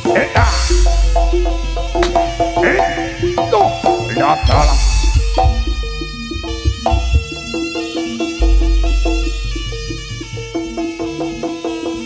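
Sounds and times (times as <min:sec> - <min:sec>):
drums: 0:00.0 - 0:12.0
quick repeated pitched notes: 0:00.0 - 0:12.0
deep booming note: 0:00.4 - 0:03.4, 0:04.0 - 0:07.6, 0:08.4 - 0:10.2.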